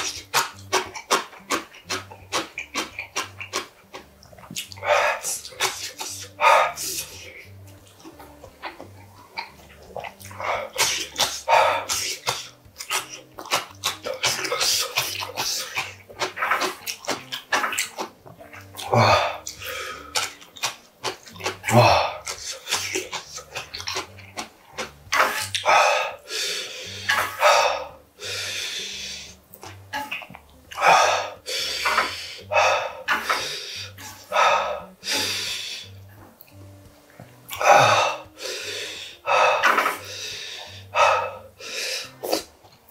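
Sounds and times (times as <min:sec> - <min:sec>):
person slurping noodles: 0:00.0 - 0:07.5, 0:09.4 - 0:35.9, 0:37.5 - 0:42.6
man huffing and puffing: 0:04.8 - 0:07.6, 0:10.3 - 0:17.9, 0:18.8 - 0:29.4, 0:30.8 - 0:36.0, 0:37.5 - 0:42.5.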